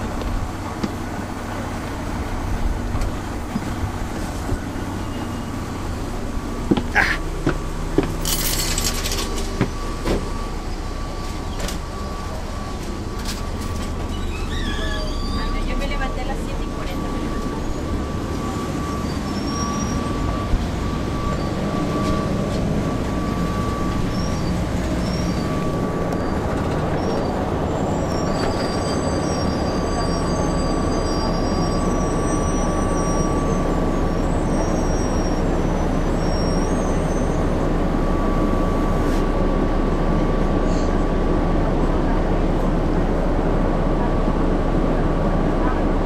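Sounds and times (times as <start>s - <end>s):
bus diesel engine running: 0.0s - 46.0s
steady whine: 0.0s - 46.0s
faint high squeaks: 13.8s - 15.8s.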